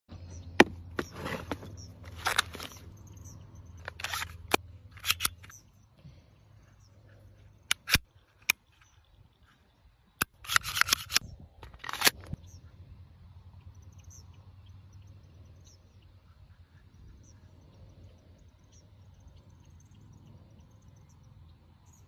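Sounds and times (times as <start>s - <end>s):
short sliding rasps: 1.0s - 2.8s, 3.8s - 5.6s, 10.2s - 12.4s
sharp mechanical pistol clicks: 7.7s - 8.6s.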